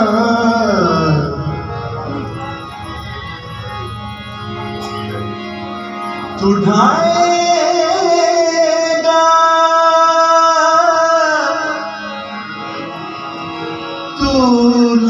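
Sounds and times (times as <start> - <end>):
man singing a hymn: 0.0 - 1.5, 6.3 - 11.9, 14.2 - 15.0
harmonium drone: 0.0 - 15.0.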